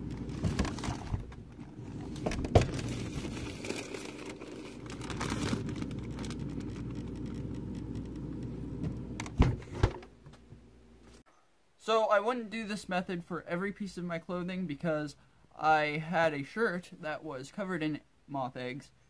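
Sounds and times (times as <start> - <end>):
plastic bag crinkling: 0.0 - 8.4
steady low hum: 0.0 - 11.2.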